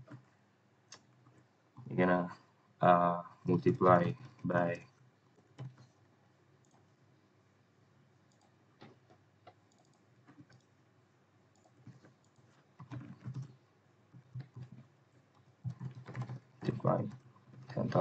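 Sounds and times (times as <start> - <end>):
computer keyboard keystrokes: 8.3 - 10.7, 11.5 - 13.6, 14.2 - 14.8, 15.6 - 18.0.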